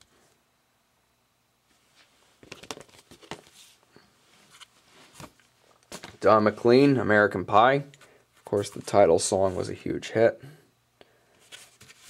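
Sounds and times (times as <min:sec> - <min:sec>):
cardboard record jackets rustling: 0:01.7 - 0:07.1.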